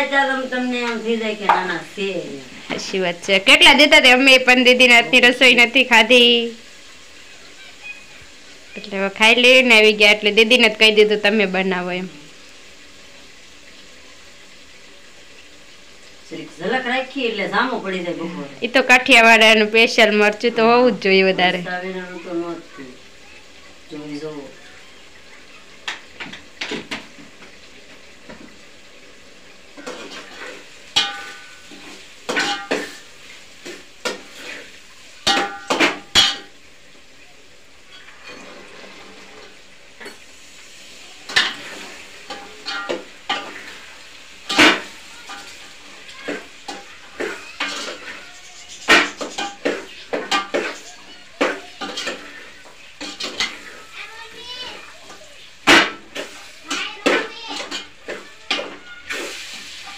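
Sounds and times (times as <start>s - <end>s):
vegetables frying: 0.0s - 59.9s
spoon scraping in a pot: 46.3s - 53.9s.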